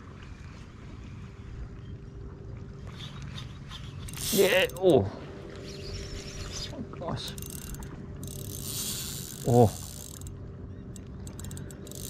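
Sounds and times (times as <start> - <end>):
spinning reel clicking and whirring: 4.0 - 4.8, 7.3 - 12.0.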